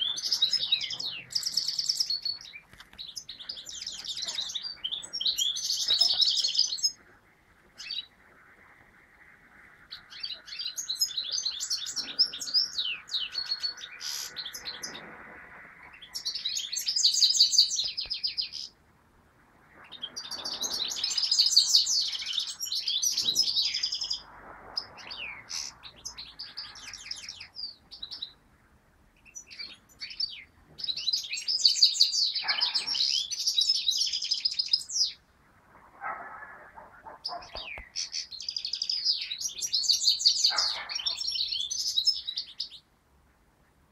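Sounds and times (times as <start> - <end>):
finch twittering: 0.0 - 7.0, 9.9 - 18.8, 19.8 - 28.4.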